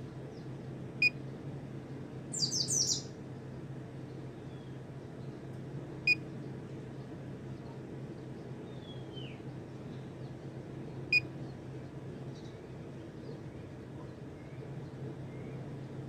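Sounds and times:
steady low hum: 0.0 - 16.0
faint bird chirp: 2.3 - 3.1.

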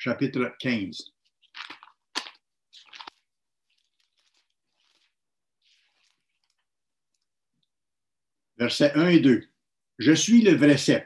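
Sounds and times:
thin paper pages rustling: 1.2 - 7.3.

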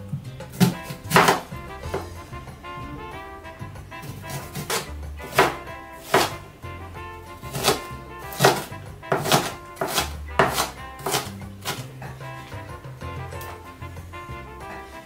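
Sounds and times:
background music: 0.0 - 15.0
knife chopping on cutting board: 0.5 - 2.1, 4.0 - 6.5, 7.4 - 12.6.

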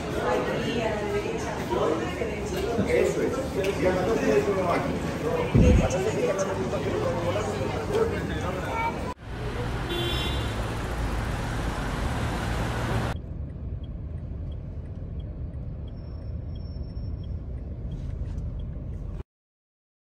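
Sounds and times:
road traffic: 0.0 - 19.2
vehicle engine hum: 5.8 - 19.2.

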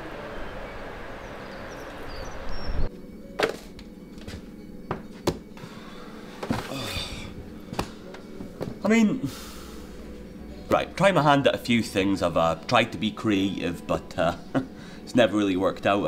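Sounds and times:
street background noise: 0.0 - 2.9.

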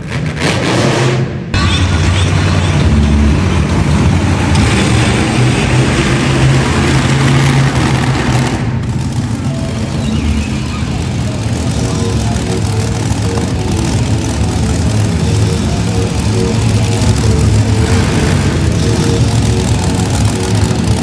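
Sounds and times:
monster truck engine running: 0.0 - 21.0.

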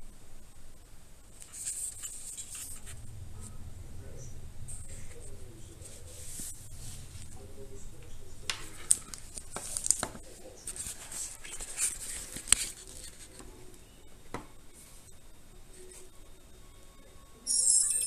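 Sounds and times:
hands rustling with camera: 8.4 - 13.4.

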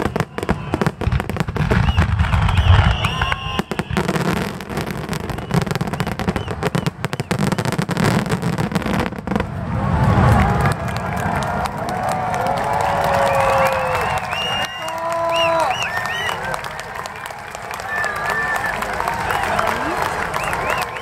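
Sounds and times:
firework booms and crackles: 0.0 - 11.9.

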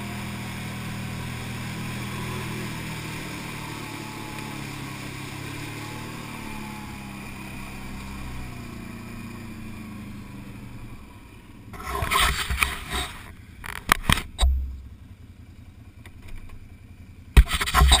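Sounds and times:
quad bike engine running: 0.0 - 18.0
rustles and knocks at microphone: 11.8 - 14.9, 17.4 - 18.0.

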